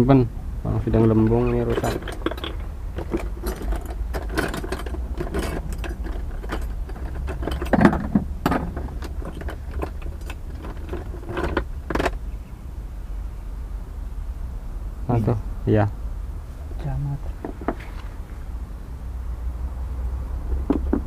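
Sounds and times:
steady low hum: 0.0s - 21.0s
small hard parts clinking: 0.9s - 12.2s.

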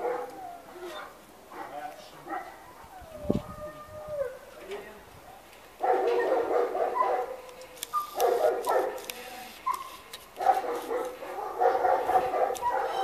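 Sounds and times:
dog barking: 0.0s - 2.6s, 5.8s - 7.5s, 8.1s - 9.0s, 9.7s - 13.0s.

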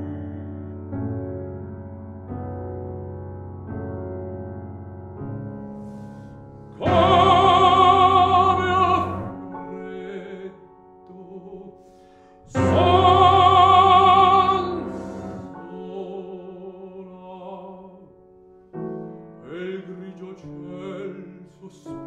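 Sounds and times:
piano chords: 0.0s - 22.0s
baritone singing: 6.7s - 18.1s, 19.4s - 22.0s.

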